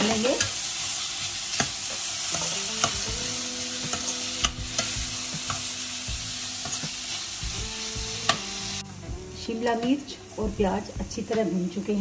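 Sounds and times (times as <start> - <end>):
vegetables sizzling in a pan: 0.0 - 12.0
metal spoon scraping a pan: 0.1 - 7.4.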